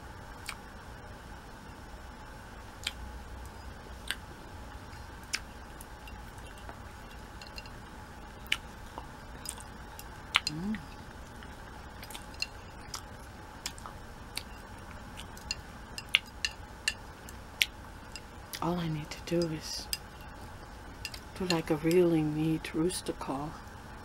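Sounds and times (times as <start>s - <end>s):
person humming: 10.5s - 10.9s.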